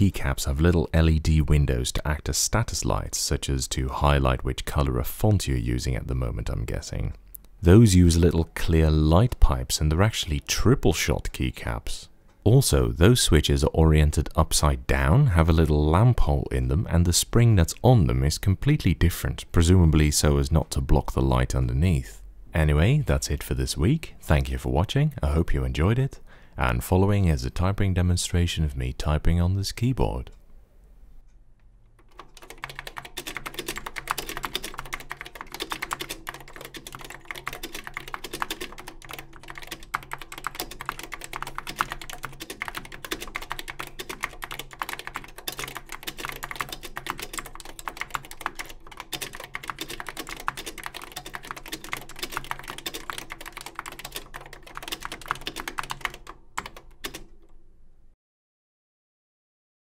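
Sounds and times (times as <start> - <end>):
fast keyboard typing: 32.0 - 57.6.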